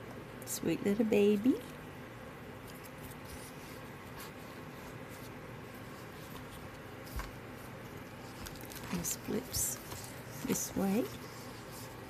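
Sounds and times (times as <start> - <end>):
album pages rustling and turning: 2.6 - 12.0.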